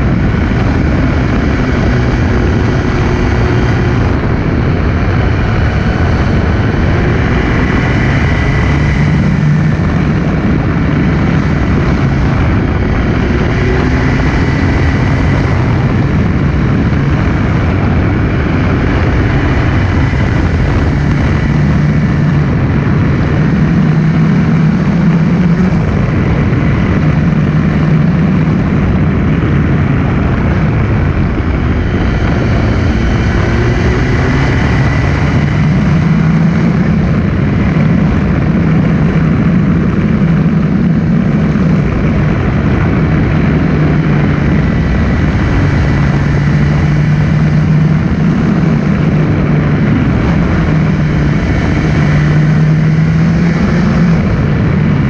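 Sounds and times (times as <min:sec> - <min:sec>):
motorcycle engine running: 0:00.0 - 0:55.0
wind rush on microphone: 0:00.0 - 0:55.0.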